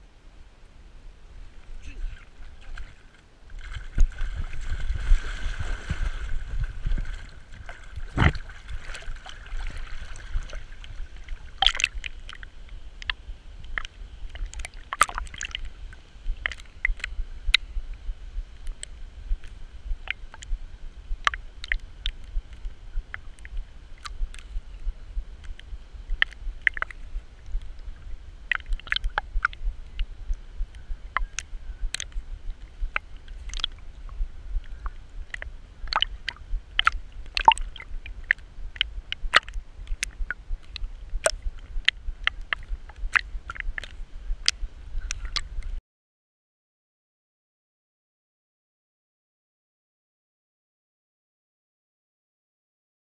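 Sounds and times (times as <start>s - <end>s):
water sloshing and gurgling: 1.5s - 17.7s, 18.4s - 45.8s
water clicks against camera case: 11.6s - 12.5s, 28.5s - 30.0s, 31.2s - 32.2s, 33.3s - 33.8s, 35.3s - 45.5s
low rumble: 15.5s - 45.8s.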